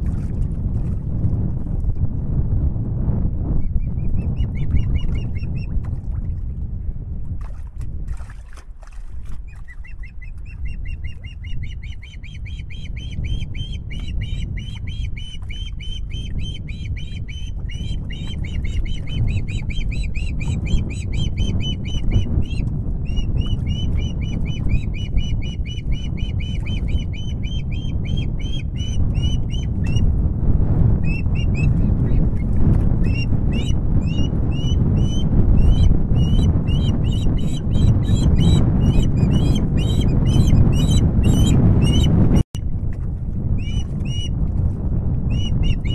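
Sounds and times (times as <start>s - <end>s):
osprey high chirps: 10.6s - 22.2s
low rumble: 12.0s - 45.9s.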